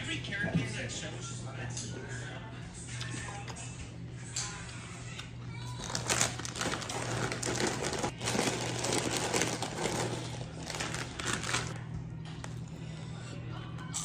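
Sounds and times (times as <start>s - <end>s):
plastic bag crinkling: 5.7s - 11.8s.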